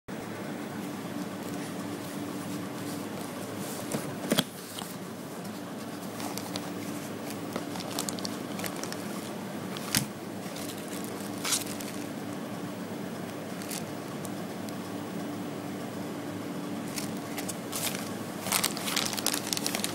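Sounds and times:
background hum: 0:00.1 - 0:19.9
plastic bag crinkling: 0:06.2 - 0:12.2, 0:13.5 - 0:14.3, 0:16.9 - 0:19.9
cardboard box being opened: 0:16.9 - 0:19.9.

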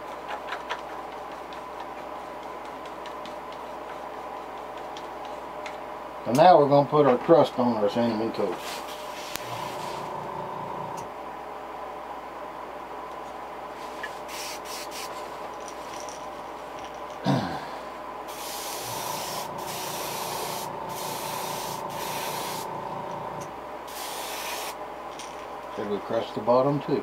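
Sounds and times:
airbrush spraying hiss: 0:14.3 - 0:15.2, 0:18.3 - 0:22.8, 0:23.9 - 0:24.8.

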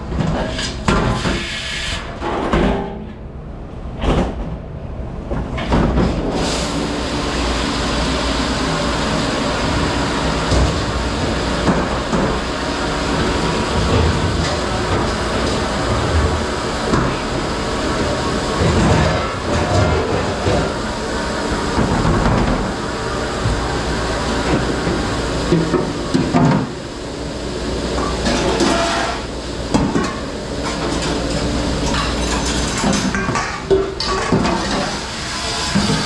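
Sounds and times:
machinery running: 0:06.2 - 0:36.0
dishware and racks clattering: 0:18.1 - 0:20.8, 0:28.0 - 0:36.0.

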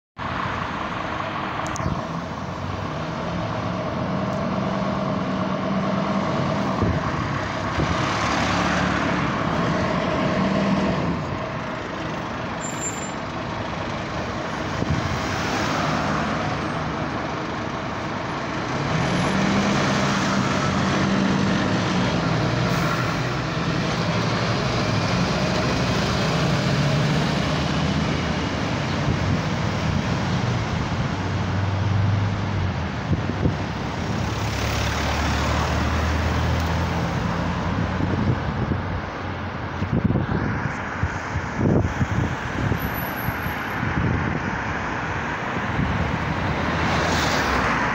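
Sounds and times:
diesel engine revving: 0:01.1 - 0:38.9.

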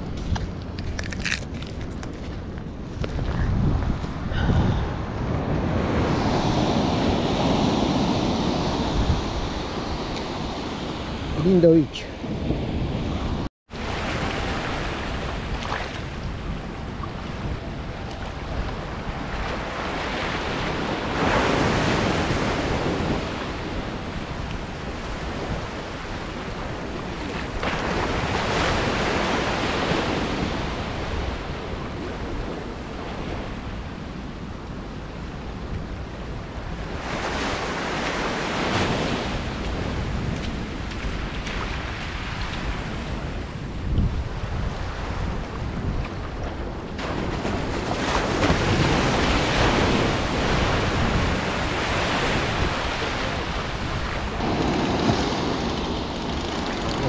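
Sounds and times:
wind rumble on microphone: 0:00.0 - 0:57.0
surf breaking on beach: 0:46.9 - 0:57.0.

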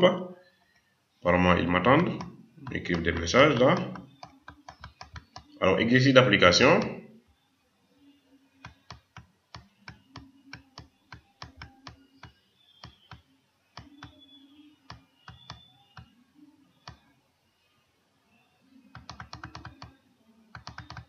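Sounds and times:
computer controls clicking: 0:01.9 - 0:05.6, 0:08.6 - 0:16.1, 0:16.8 - 0:17.0, 0:18.9 - 0:21.0.

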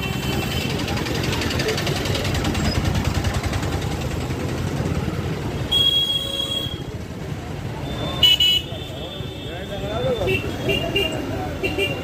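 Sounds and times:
crowd and traffic hubbub: 0:00.0 - 0:12.0
vehicle horn: 0:05.7 - 0:06.8, 0:07.8 - 0:09.6.

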